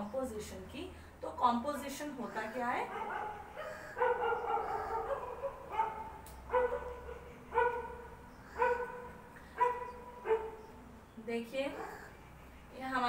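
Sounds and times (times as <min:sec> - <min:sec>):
dogs barking: 0:02.8 - 0:10.7.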